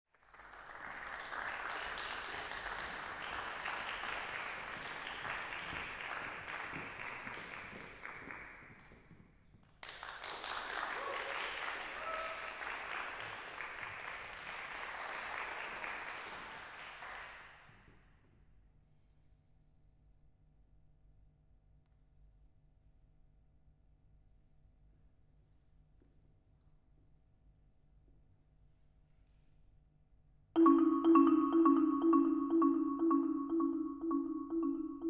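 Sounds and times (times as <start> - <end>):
audience applauding: 0.2 - 8.7, 9.8 - 17.4.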